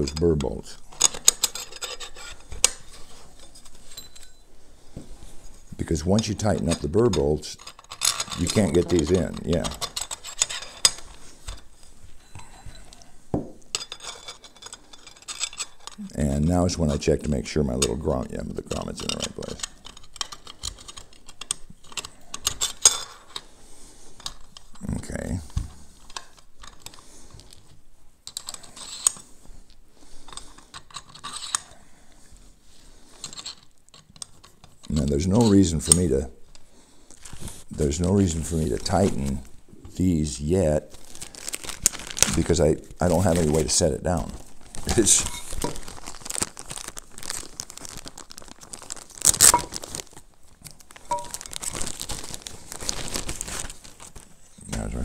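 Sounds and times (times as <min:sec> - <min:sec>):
small metal parts clicking: 0:00.0 - 0:02.9, 0:06.2 - 0:11.7, 0:13.7 - 0:16.0, 0:18.7 - 0:23.4, 0:33.2 - 0:36.0
plastic bag crinkling: 0:07.5 - 0:11.4, 0:37.1 - 0:39.5, 0:40.8 - 0:55.0.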